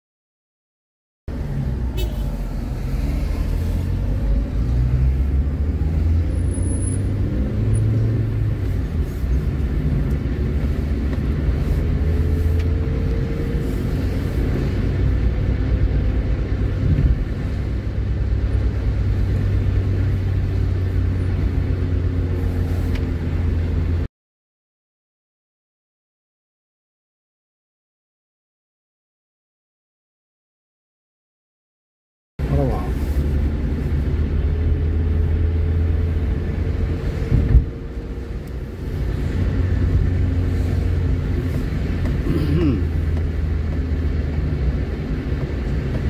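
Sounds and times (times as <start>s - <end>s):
engine and tyres rumbling: 1.3s - 24.1s, 32.4s - 46.0s.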